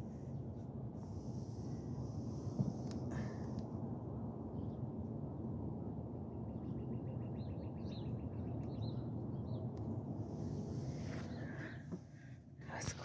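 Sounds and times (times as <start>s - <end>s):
steady low rumble: 0.0s - 13.0s
small birds chirping: 6.5s - 9.8s.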